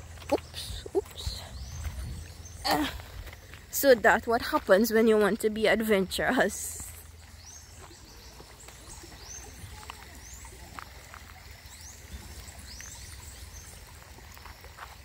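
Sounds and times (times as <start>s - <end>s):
wind rumble on microphone: 0.0s - 3.7s.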